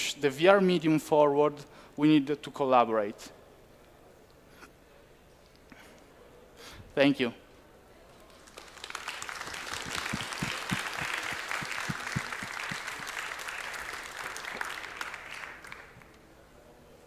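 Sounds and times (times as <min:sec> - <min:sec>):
audience applauding: 0:08.2 - 0:16.2.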